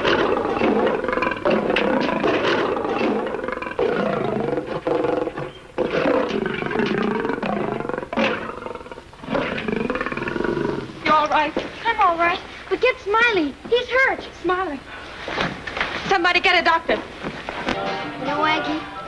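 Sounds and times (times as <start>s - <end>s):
lion roaring: 0.0s - 11.0s.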